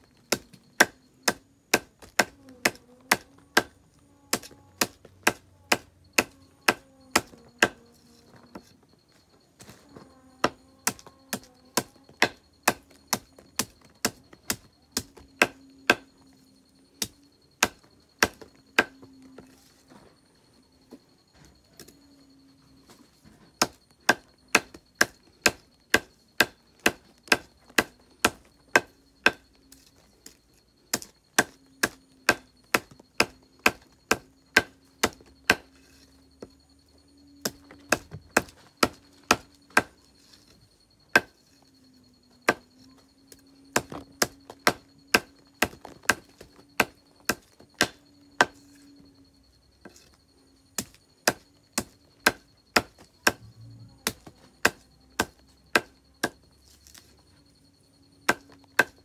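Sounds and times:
knife chopping stalks on wood: 23.6s - 29.8s, 30.9s - 35.7s, 37.4s - 40.4s, 41.1s - 41.4s, 43.8s - 48.8s, 50.8s - 57.0s, 58.3s - 59.0s.

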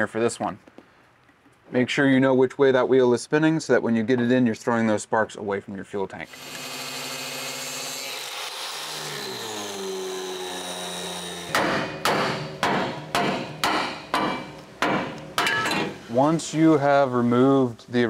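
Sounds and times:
angle grinder whine winding down: 6.3s - 11.5s
hammer striking chisel: 11.5s - 15.9s.

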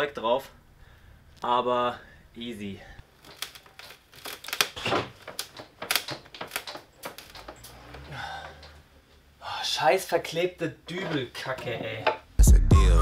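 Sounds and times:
wooden panel knocking and creaking: 4.5s - 8.8s.

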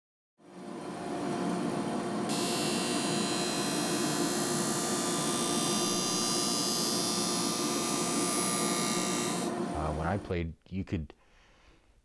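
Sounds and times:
motor hum: 0.5s - 10.2s
grinding wheel hissing on steel blade: 2.3s - 9.5s.

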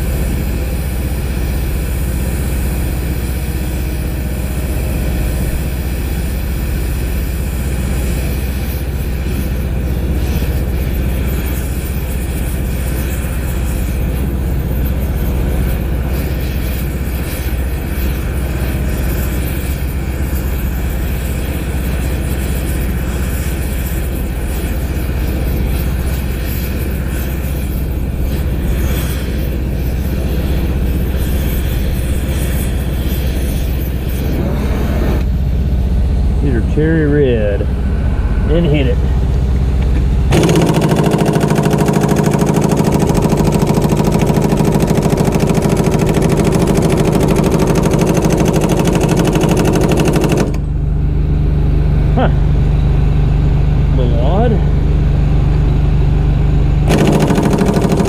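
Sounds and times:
torch flame burning: 0.0s - 37.7s, 38.4s - 58.0s
low engine rumble: 29.5s - 58.0s.

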